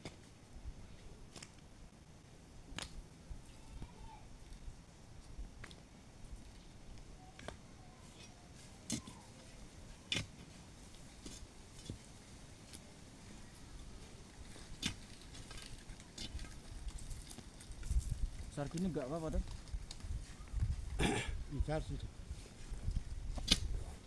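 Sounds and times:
digging stick striking soil: 2.7 - 3.0, 8.2 - 9.2, 10.0 - 10.5, 11.2 - 12.1, 14.7 - 15.2, 23.3 - 23.9.

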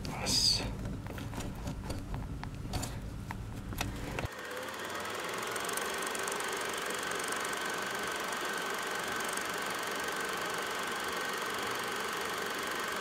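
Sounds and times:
low handling hum: 0.0 - 4.3
mechanical buzz with fast ticking: 4.2 - 13.0.

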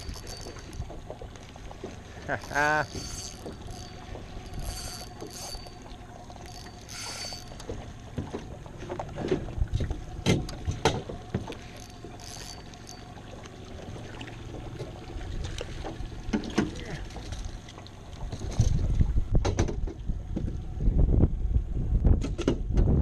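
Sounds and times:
fishing reel gears whirring: 0.0 - 8.2, 9.8 - 18.6.

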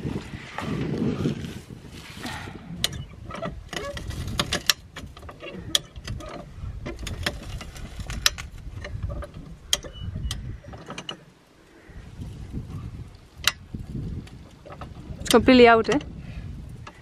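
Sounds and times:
low rumble: 0.0 - 4.2.

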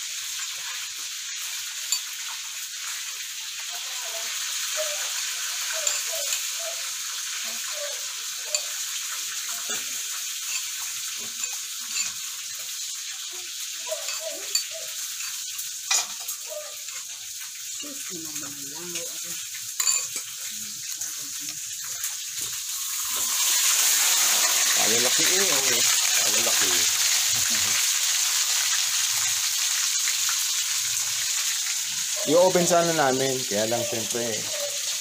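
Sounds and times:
oil sizzling in wok: 0.0 - 35.0
spoon clinking ceramic bowl: 5.8 - 6.4, 10.5 - 12.2, 14.0 - 16.3, 19.8 - 20.3.

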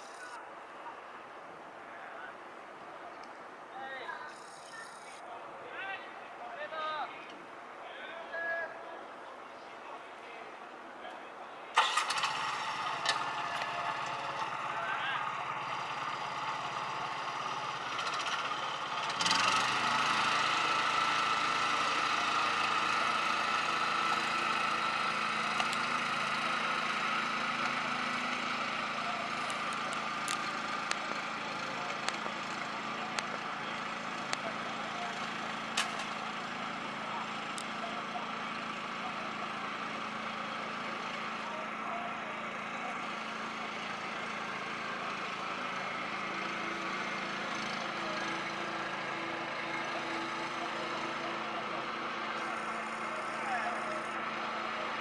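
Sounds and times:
engine running: 11.8 - 55.0.

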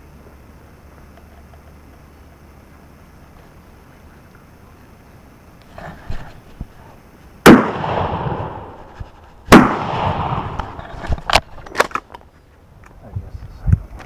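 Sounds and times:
shotgun shots echoing: 7.4 - 10.9.

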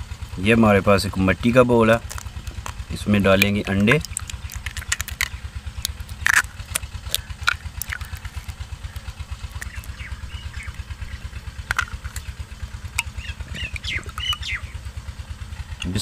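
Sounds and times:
engine running steadily: 0.0 - 16.0
eggs cracked against clay bowl: 1.9 - 14.8
faint bird chirps: 13.0 - 14.9.

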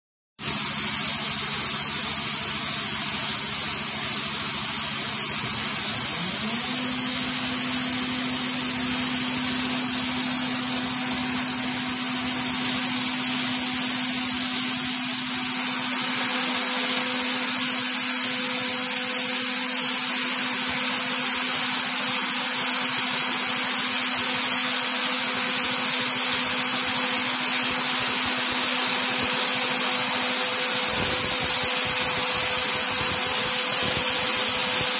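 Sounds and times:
coolant spray hiss: 0.4 - 34.9
milling spindle cutting metal: 4.7 - 34.9
low hum rising in pitch: 5.3 - 20.0.

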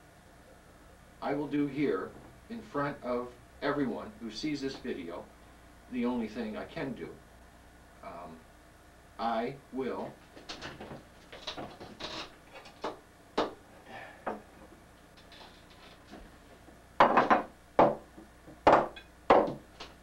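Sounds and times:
objects clattering on wooden desk: 10.4 - 13.6, 17.0 - 20.0.

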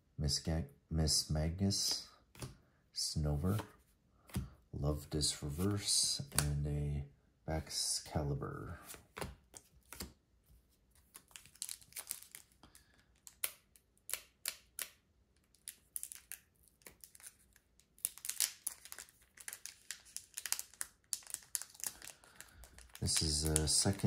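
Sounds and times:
cards rustling and clicking: 3.4 - 4.6, 8.8 - 24.0
foil wrapper crinkling and tearing: 11.0 - 14.8, 15.5 - 24.0.

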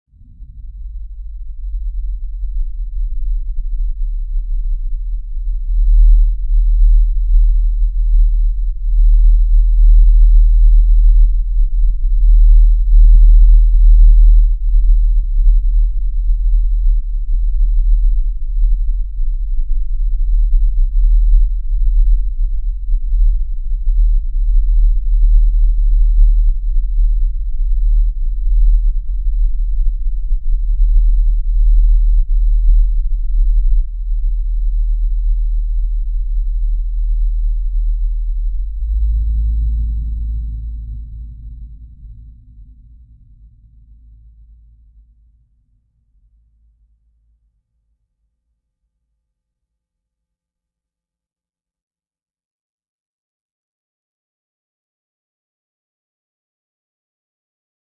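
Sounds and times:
deep sub-bass drone: 0.0 - 45.4.

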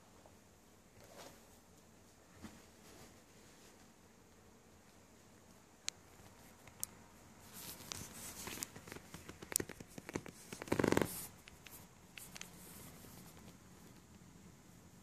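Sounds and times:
fabric rustling: 7.4 - 14.0.

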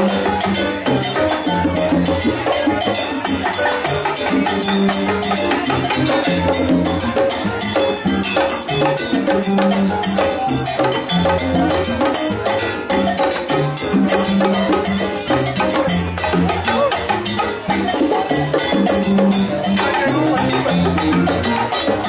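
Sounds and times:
electric bass line: 0.0 - 22.0
salsa band playing: 0.0 - 22.0.

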